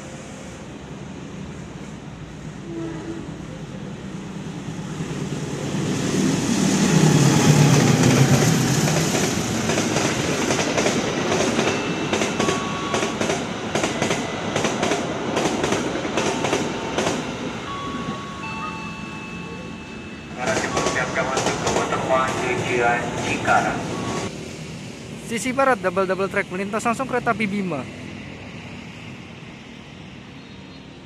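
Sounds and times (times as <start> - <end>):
locomotive engine passing: 3.4 - 31.0
train wheels clicking: 7.4 - 17.3, 20.4 - 23.5.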